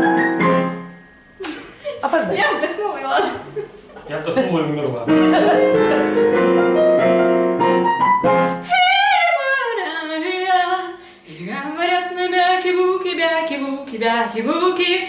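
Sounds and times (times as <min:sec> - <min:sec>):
piano chords: 0:00.0 - 0:03.6, 0:04.5 - 0:09.8
woman singing jazz vocal: 0:08.6 - 0:15.0.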